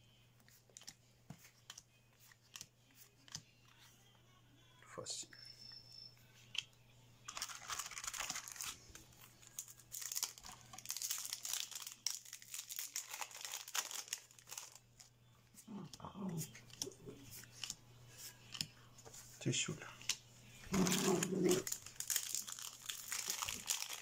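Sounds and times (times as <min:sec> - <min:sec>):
foil wrapper crinkling and tearing: 0:07.3 - 0:15.1, 0:20.7 - 0:24.0.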